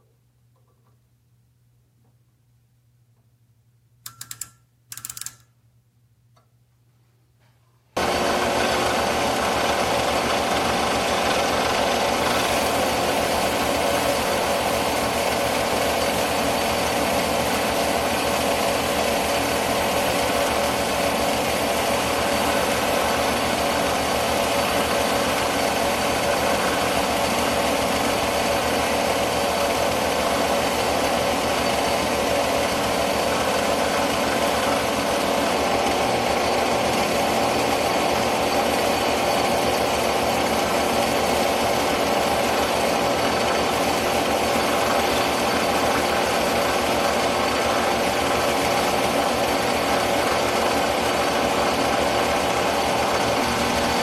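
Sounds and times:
short clicking rattles: 4.0 - 5.6
metal lathe running and whining: 8.0 - 54.0.

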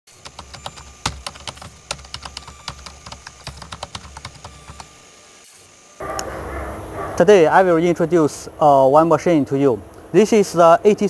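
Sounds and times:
keyboard typing clicks: 0.2 - 5.0
faint low hum: 6.0 - 11.0.

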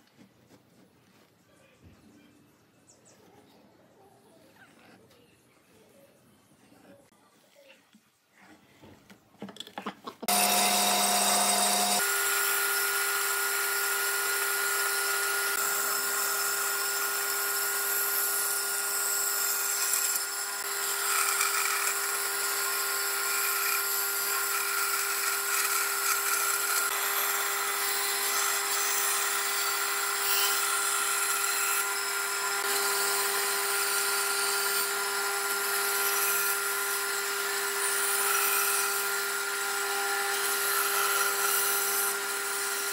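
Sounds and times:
band saw cutting wood: 10.2 - 42.9.

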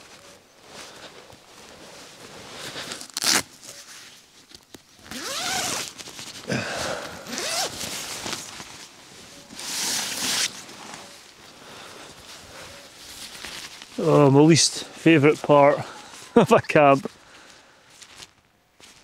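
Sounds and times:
tent zip being pulled: 0.6 - 4.2, 5.0 - 6.5, 7.2 - 8.9, 9.5 - 11.2.

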